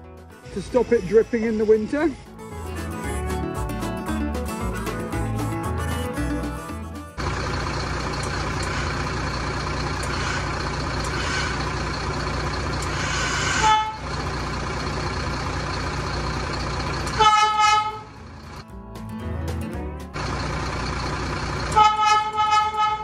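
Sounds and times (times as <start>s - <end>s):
lorry engine running: 0.3s - 23.0s
air horn blasts: 10.2s - 11.7s, 12.9s - 14.1s, 17.1s - 18.2s, 21.7s - 23.0s.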